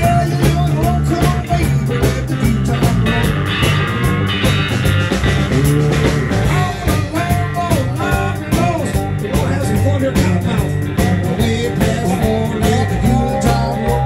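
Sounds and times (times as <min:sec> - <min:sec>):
blues band playing: 0:00.0 - 0:14.0
electric guitar solo: 0:03.0 - 0:09.5.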